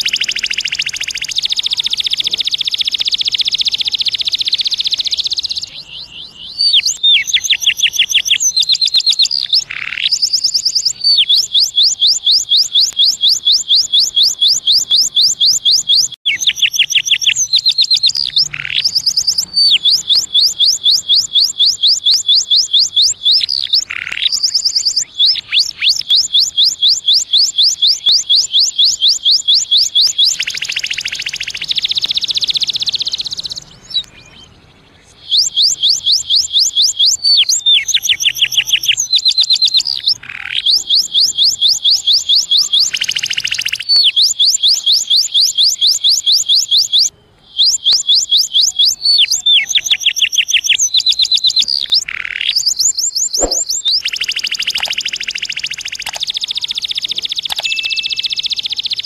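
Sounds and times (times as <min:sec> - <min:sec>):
canary singing: 0:00.0 - 0:59.0.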